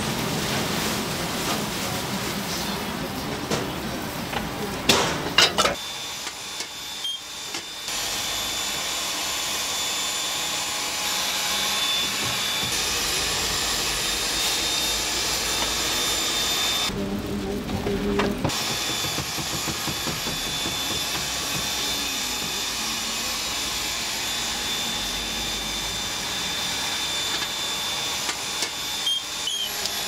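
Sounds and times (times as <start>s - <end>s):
gas burners hissing: 0.0s - 30.0s
sharp knocks: 18.4s - 22.6s.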